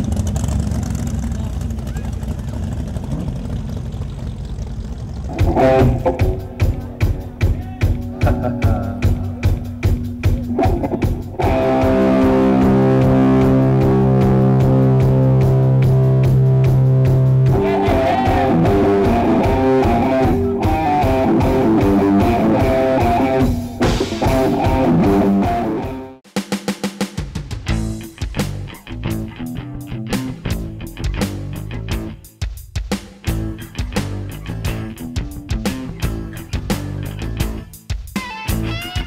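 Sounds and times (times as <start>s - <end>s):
rhythmic tapping: 5.3s - 25.4s
electric guitar: 5.3s - 26.2s, 27.7s - 32.2s, 33.3s - 39.0s
drum kit hits: 5.3s - 29.1s.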